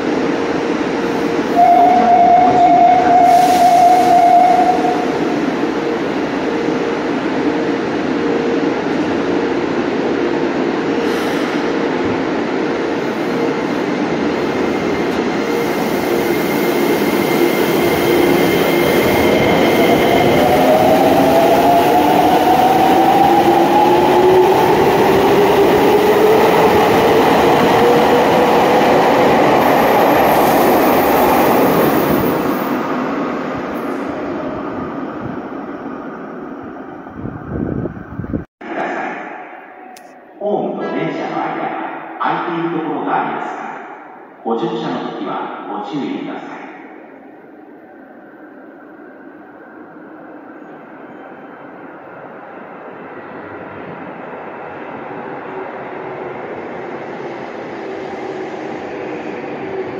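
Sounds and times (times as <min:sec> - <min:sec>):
subway train rumbling: 0:00.0 - 0:59.9.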